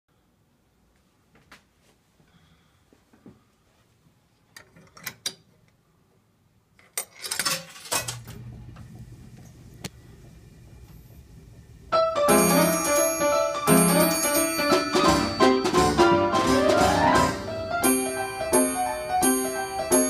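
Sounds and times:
motor and pump humming: 8.0s - 13.2s
player piano music: 11.9s - 20.0s.

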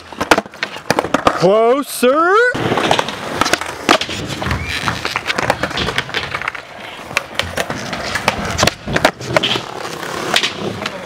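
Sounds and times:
skateboard deck clacking on ground: 0.0s - 1.7s, 2.6s - 11.0s
skateboard rolling over concrete: 0.0s - 11.0s.

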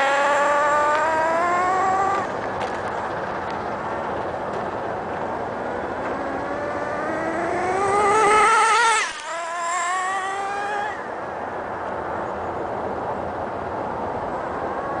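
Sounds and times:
rc truck nitro engine whining: 0.0s - 2.4s, 6.0s - 11.1s.

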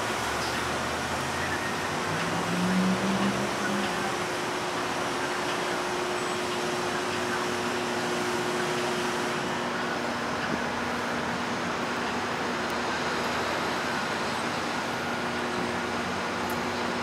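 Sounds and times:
city traffic: 0.0s - 17.0s.

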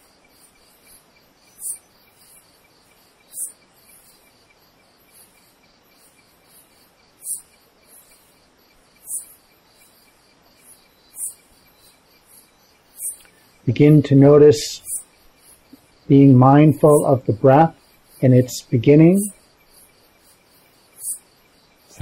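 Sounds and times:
insects trilling: 0.0s - 22.0s
very high chirps: 11.0s - 12.0s, 12.9s - 19.4s.

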